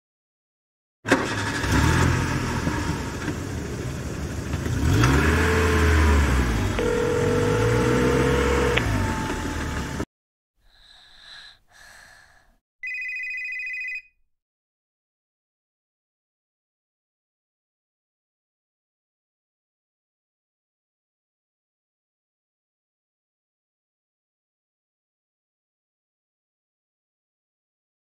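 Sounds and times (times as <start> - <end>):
car engines revving: 1.1 - 10.0
electronic telephone ring: 6.8 - 8.5, 12.8 - 14.2
faint short tones: 6.8 - 8.9
long steady tone: 6.8 - 8.9.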